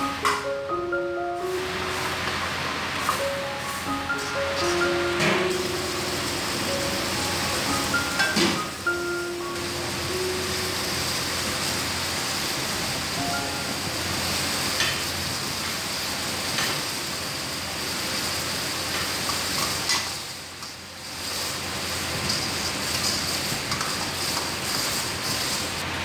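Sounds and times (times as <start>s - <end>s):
gravy sizzling: 0.0s - 26.0s.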